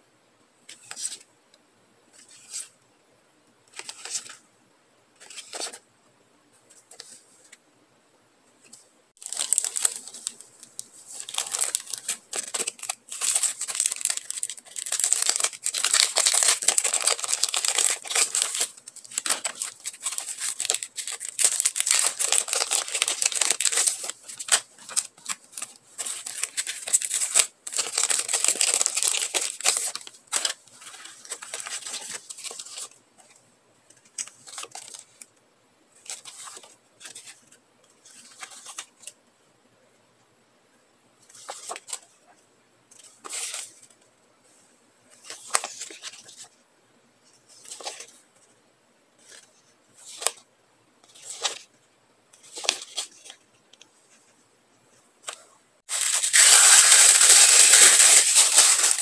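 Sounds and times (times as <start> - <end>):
plastic packaging crinkling and tearing: 9.2 - 33.0, 55.9 - 59.0.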